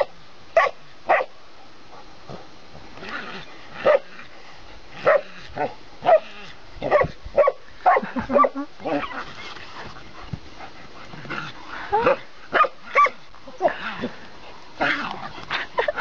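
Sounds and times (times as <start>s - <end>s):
dog barking: 0.0s - 1.3s, 6.0s - 8.1s.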